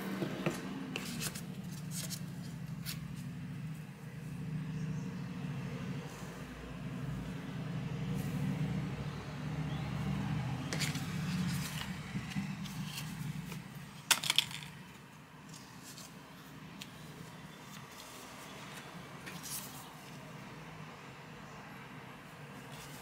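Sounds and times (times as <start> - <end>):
paper and card packaging handled: 1.0 - 3.0, 10.8 - 20.2, 22.6 - 23.0.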